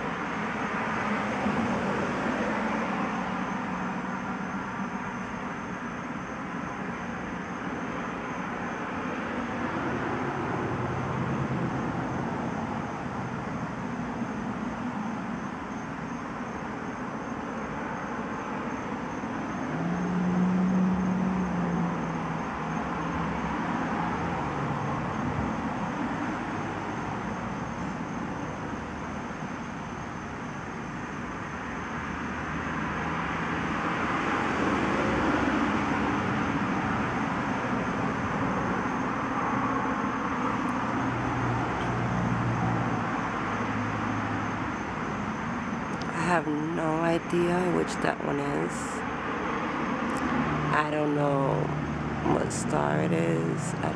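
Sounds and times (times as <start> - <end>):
passing vehicles: 0.0 - 53.9
low engine hum: 17.8 - 53.9.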